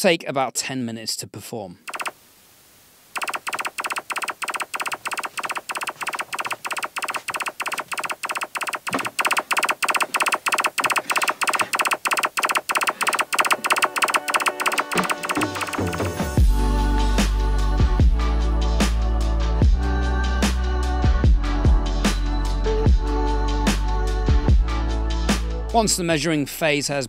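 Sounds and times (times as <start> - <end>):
rapid train of short clicks: 1.9 - 2.2, 3.2 - 16.1.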